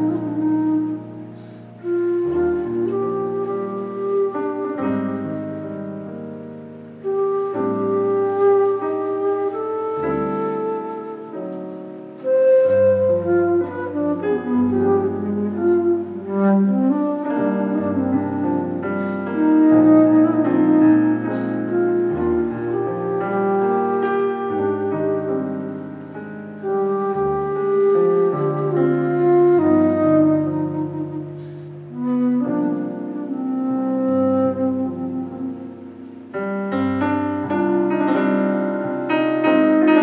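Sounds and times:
flute melody: 0.0s - 40.0s
low bass piano notes: 0.0s - 40.0s
piano chords: 0.0s - 40.0s.

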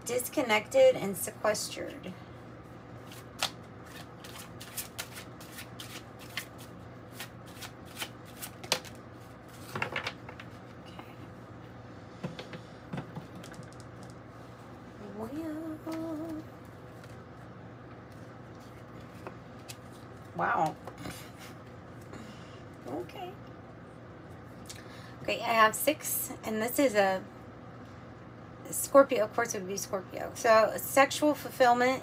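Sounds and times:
cards shuffled by hand: 3.0s - 10.8s.

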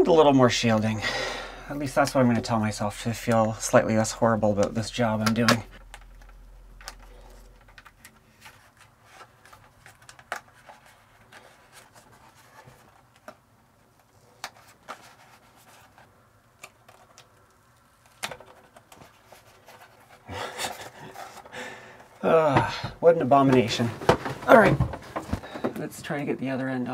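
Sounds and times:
cardboard rustling: 5.4s - 17.3s, 18.1s - 25.8s.

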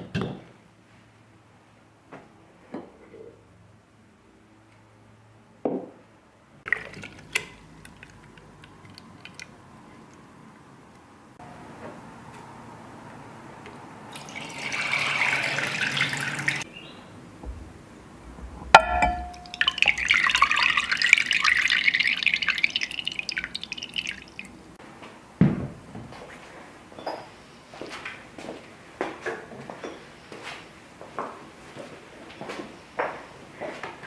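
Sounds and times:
buttermilk pouring and splashing: 6.7s - 9.6s, 14.1s - 16.6s, 18.8s - 24.6s
liquid dripping and trickling: 6.7s - 10.2s, 14.1s - 16.6s, 17.4s - 24.8s
dull thump: 17.4s - 20.5s
ceramic clink: 18.7s - 21.1s.

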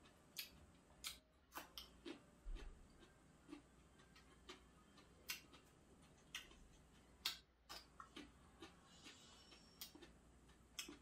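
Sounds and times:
chewing mouth clicks: 0.3s - 11.0s.

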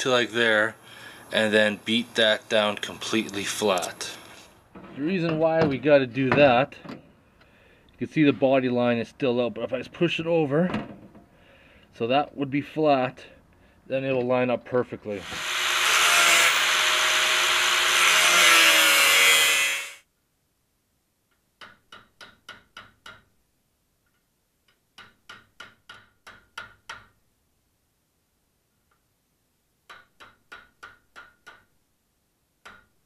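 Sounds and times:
angle grinder cutting steel: 15.2s - 20.0s.

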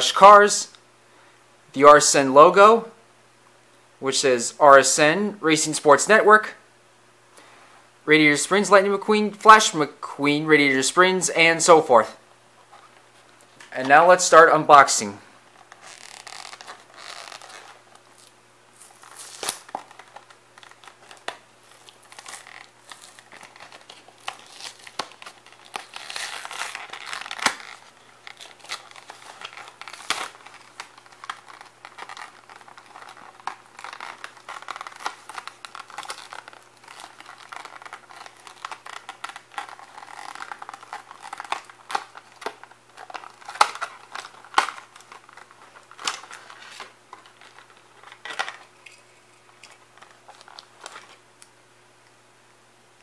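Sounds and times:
plastic packaging crackling: 15.4s - 51.5s.

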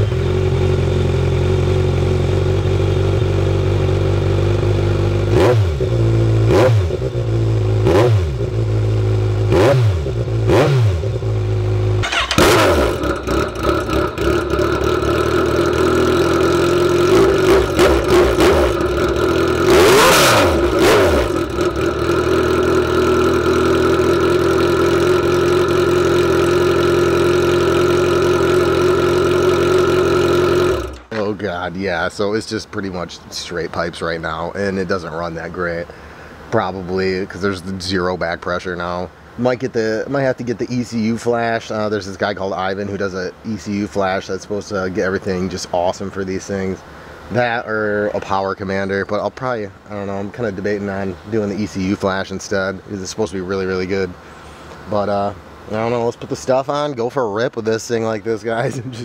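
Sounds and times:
motorcycle exhaust idling and revving: 0.0s - 31.3s
man talking: 31.1s - 54.2s, 54.8s - 59.0s.

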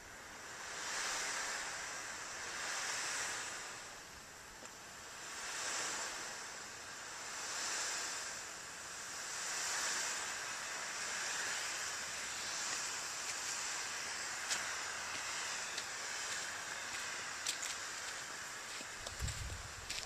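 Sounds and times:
smoke grenade hissing: 5.0s - 19.9s.

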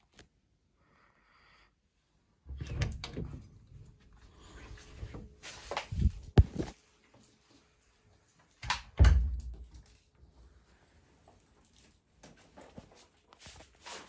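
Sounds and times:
knocks of object handled: 6.1s - 6.8s.

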